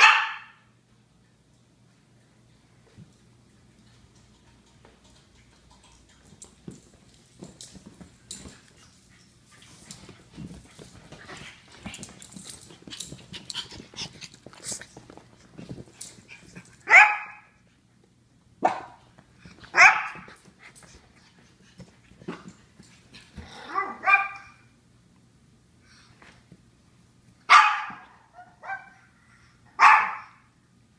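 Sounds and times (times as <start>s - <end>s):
dogs barking sharply: 0.0s - 0.6s, 16.8s - 17.5s, 19.7s - 20.3s, 23.7s - 24.6s, 27.5s - 29.0s, 29.8s - 30.5s
clicking and rustling on sofa: 2.8s - 16.9s, 19.0s - 23.5s.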